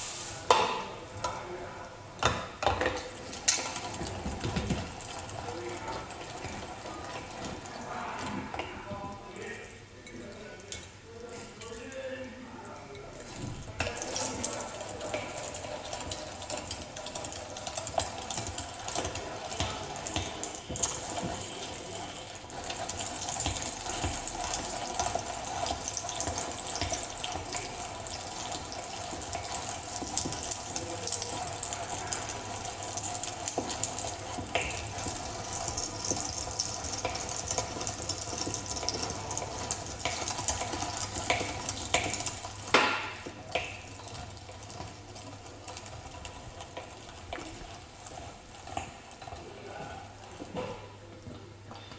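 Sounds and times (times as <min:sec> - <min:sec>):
meat grinder clatter: 0:02.6 - 0:08.3, 0:13.3 - 0:49.6
meat grinder grinding: 0:13.6 - 0:49.6.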